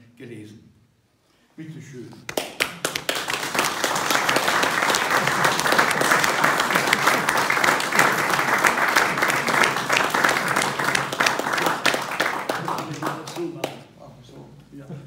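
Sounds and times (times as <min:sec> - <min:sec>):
audience applauding: 0:02.3 - 0:13.9.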